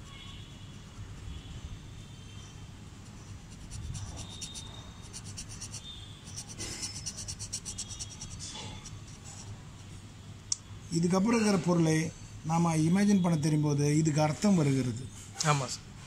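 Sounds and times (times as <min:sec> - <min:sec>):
pen nib scratching paper: 0:03.0 - 0:09.6.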